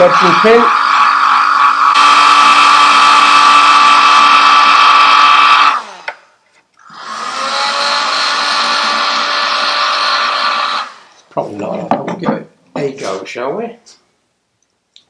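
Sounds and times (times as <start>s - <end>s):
hot air gun fan whine: 0.0s - 6.2s.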